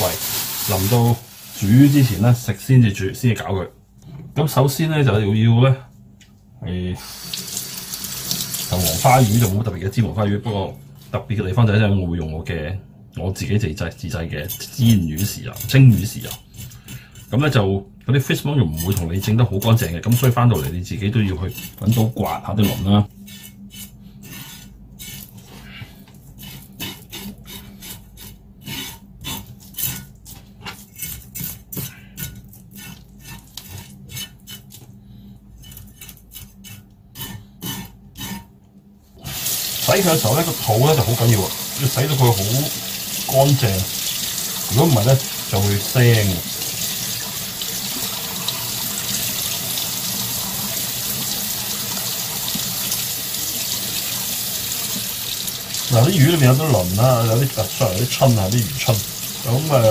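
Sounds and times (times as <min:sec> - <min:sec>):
tap water running into sink: 0:07.1 - 0:09.5, 0:39.3 - 0:56.2, 0:57.3 - 0:59.9
knife scraping fish scales: 0:14.4 - 0:17.6, 0:18.7 - 0:38.5.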